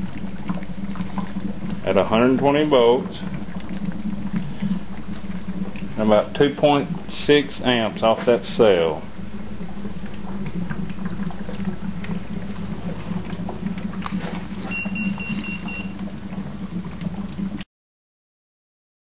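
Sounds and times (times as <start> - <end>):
gas bubbling through water: 0.0 - 17.6
steady low hum: 0.0 - 17.6
electronic beeps: 14.7 - 15.9.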